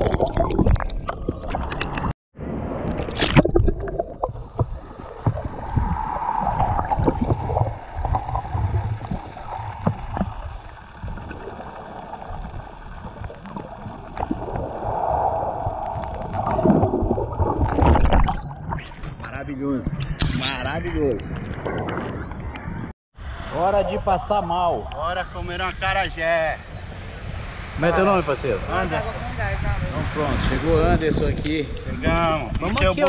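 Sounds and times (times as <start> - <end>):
water splashing: 0.0 - 2.1, 2.8 - 19.3
underwater gurgling rumble: 0.0 - 20.2, 20.8 - 22.9.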